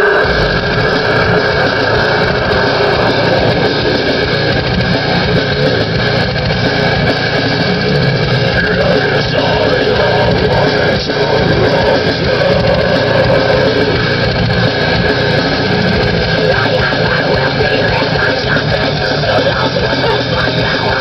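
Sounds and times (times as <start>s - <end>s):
heavy rock music on car stereo: 0.0s - 21.0s.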